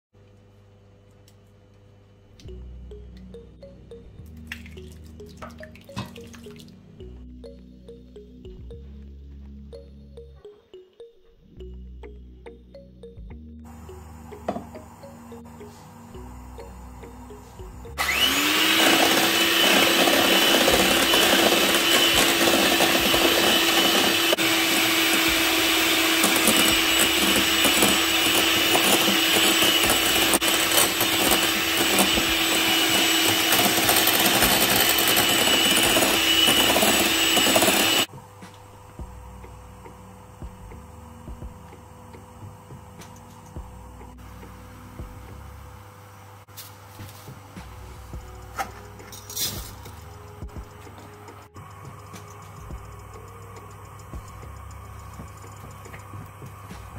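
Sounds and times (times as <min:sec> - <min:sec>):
electric hand mixer beating: 0:13.7 - 0:38.1
faint steady hum: 0:38.1 - 0:56.9.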